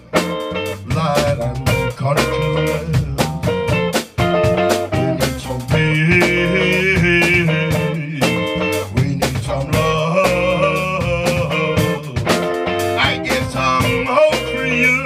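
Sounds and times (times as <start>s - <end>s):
blues rock band playing: 0.0s - 15.0s
man singing: 0.7s - 3.8s, 5.1s - 15.0s.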